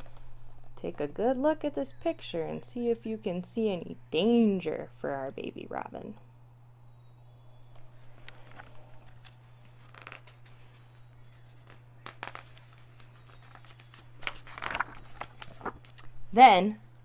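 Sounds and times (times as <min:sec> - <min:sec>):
book pages rustling: 0:00.0 - 0:00.8, 0:07.7 - 0:16.2
faint low hum: 0:00.0 - 0:17.0.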